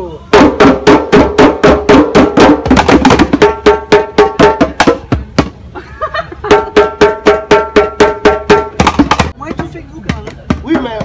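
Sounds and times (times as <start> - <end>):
djembes drumming: 0.3 - 5.6, 6.5 - 11.0.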